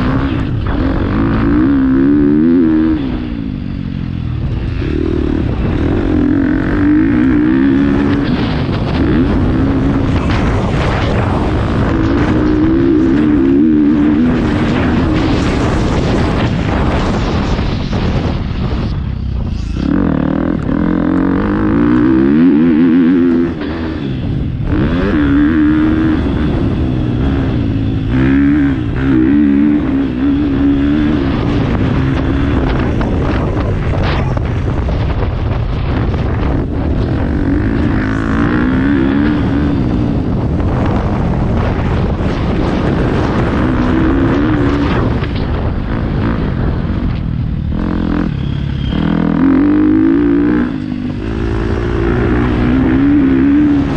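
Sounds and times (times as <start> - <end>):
motorbike engine revving: 0.0 - 53.9.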